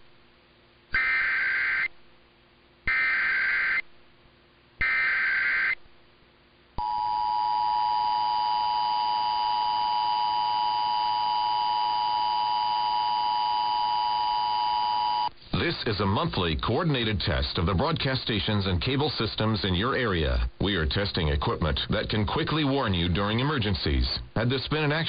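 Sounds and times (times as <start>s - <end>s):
harsh digital warble bursts: 2.9s - 3.8s, 4.8s - 5.8s.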